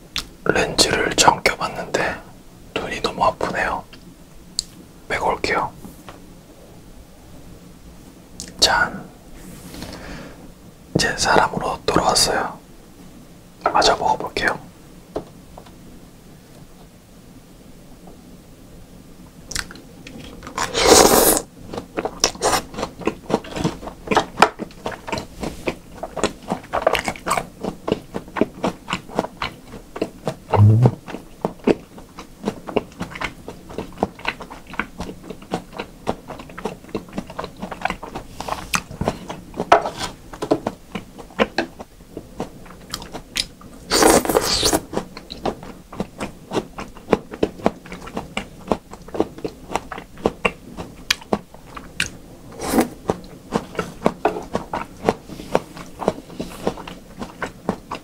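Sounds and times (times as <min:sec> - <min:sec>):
wet mouth clicks: 0:19.5 - 0:19.8, 0:30.6 - 0:31.0
soft low thump: 0:30.6 - 0:31.0
wet chewing: 0:53.0 - 0:58.0.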